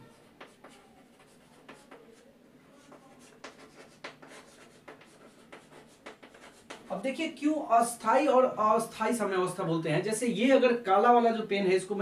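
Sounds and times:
chalk scratching on blackboard: 0:00.0 - 0:06.9.

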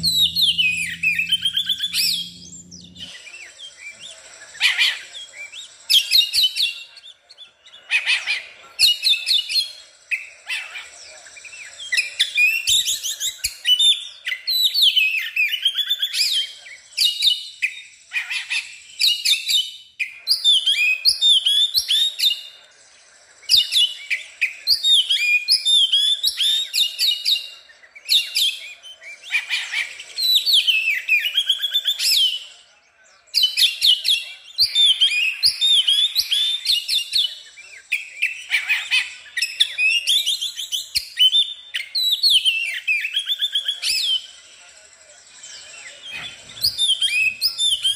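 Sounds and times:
bird singing whistled notes: 0:45.5 - 0:47.9.

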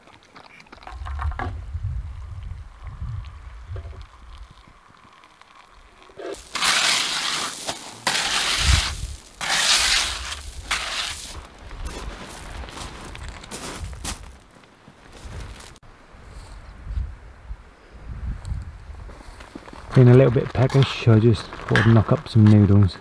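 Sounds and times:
tool scraping gravel: 0:06.1 - 0:14.6.

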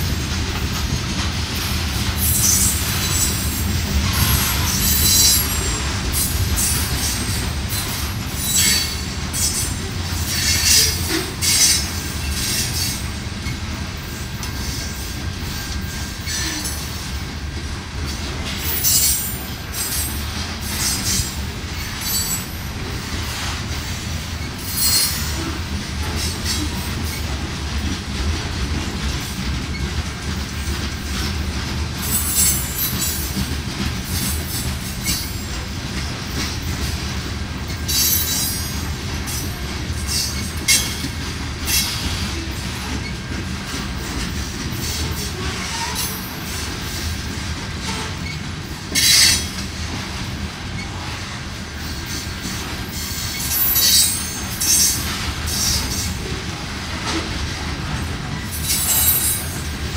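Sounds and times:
clacks over rail joints: 0:00.0 - 0:59.9
steel wheels rumbling on rail: 0:00.0 - 0:59.9
wheel flanges squealing: 0:02.2 - 0:07.0, 0:07.7 - 0:13.0, 0:24.4 - 0:25.5, 0:52.9 - 0:56.1, 0:58.4 - 0:59.6.

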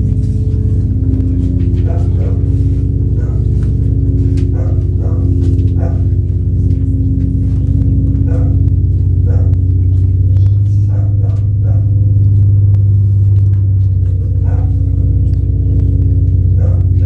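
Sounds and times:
low electronic drone: 0:00.0 - 0:17.0.

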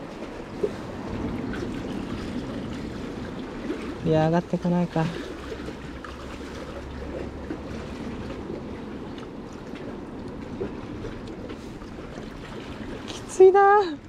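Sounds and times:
sea water lapping on concrete blocks: 0:00.0 - 0:14.0.

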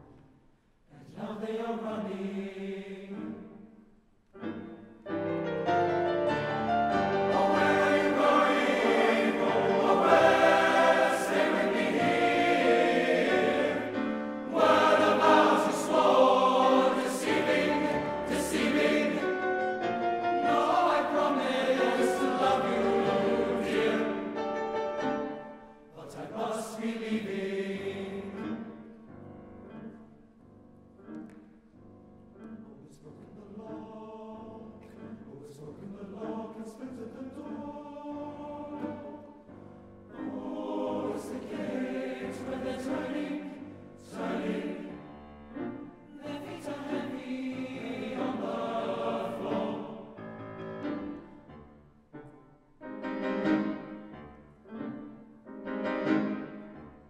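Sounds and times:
male choir singing: 0:00.9 - 0:03.6, 0:07.2 - 0:24.6, 0:25.8 - 0:28.7, 0:32.8 - 0:39.5, 0:40.1 - 0:45.1, 0:46.1 - 0:50.2
piano accompaniment: 0:04.4 - 0:32.6, 0:38.2 - 0:57.0.

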